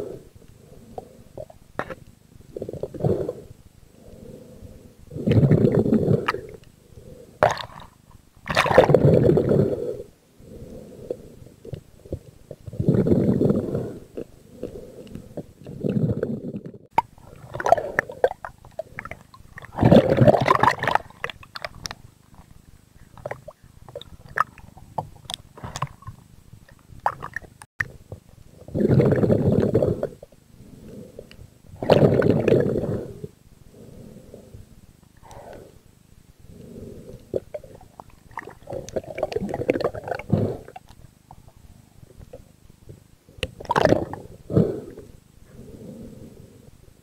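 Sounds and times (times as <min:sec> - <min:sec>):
underwater gurgling and rushing water: 0:07.4 - 0:09.8, 0:15.8 - 0:21.9, 0:28.7 - 0:30.2, 0:31.8 - 0:33.1, 0:37.5 - 0:40.8, 0:43.6 - 0:44.2.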